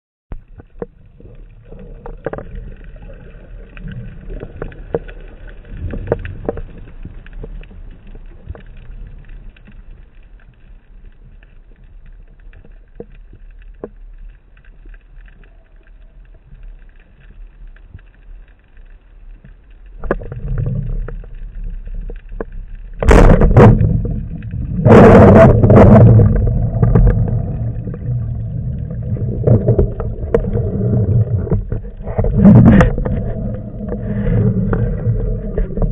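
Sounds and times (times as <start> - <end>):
faint clicks: 0.3 - 24.7
low underwater rumble: 0.3 - 35.9
rushing gurgling water: 20.0 - 35.9.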